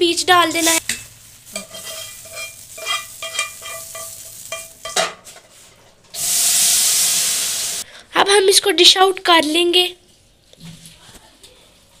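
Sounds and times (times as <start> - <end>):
hot oil sizzling: 0.0 - 7.9
spoon scraping: 0.6 - 5.0
loud steady hiss: 6.2 - 7.8.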